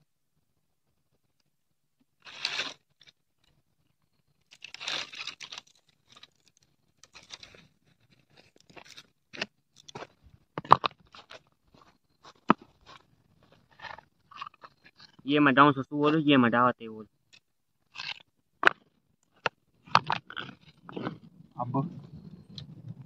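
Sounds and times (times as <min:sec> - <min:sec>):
dry twigs crunching and rustling: 0:02.2 - 0:03.2, 0:04.4 - 0:15.2, 0:17.9 - 0:21.2
sticks and stones knocking: 0:04.5 - 0:15.2, 0:17.3 - 0:21.2.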